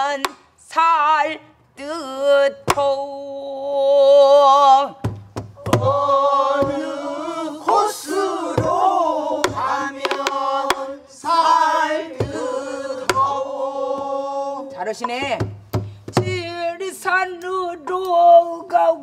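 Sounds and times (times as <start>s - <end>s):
barrel drum strokes: 5.1s - 14.3s
several voices singing together: 5.6s - 15.2s.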